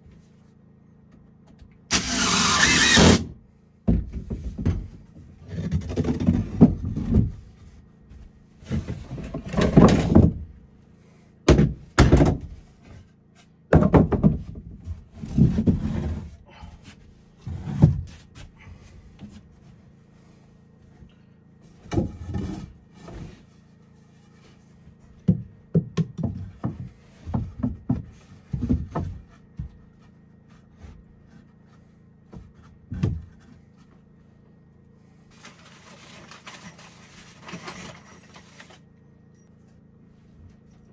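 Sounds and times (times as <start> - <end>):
thunks and knocks on wood: 3.8 - 10.6, 11.5 - 12.6, 13.7 - 16.1, 21.8 - 22.7, 25.2 - 30.0, 32.3 - 33.6.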